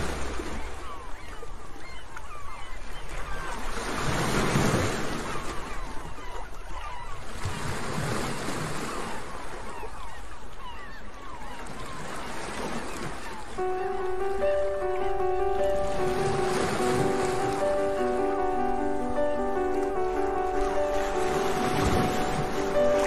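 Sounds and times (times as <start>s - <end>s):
sea waves breaking: 0.0s - 23.0s
seagull calls: 5.0s - 7.3s, 8.8s - 23.0s.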